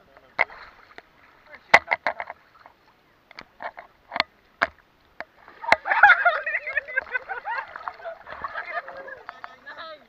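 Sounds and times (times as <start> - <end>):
sea water splashing: 0.2 - 10.0
people laughing and shrieking: 5.6 - 9.2.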